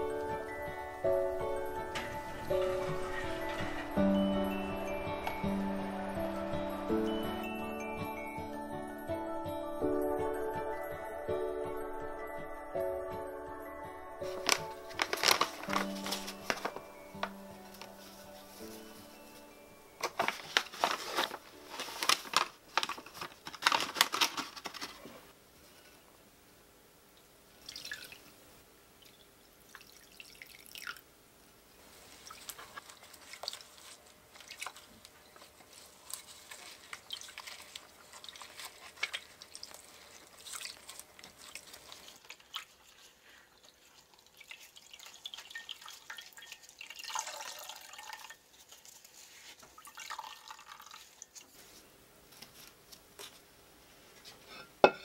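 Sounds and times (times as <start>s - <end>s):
cloth bag squishing in water: 14.2s - 18.8s, 20.0s - 24.4s, 32.1s - 49.1s
water dripping and trickling: 27.2s - 28.4s, 29.0s - 31.1s, 32.2s - 51.4s.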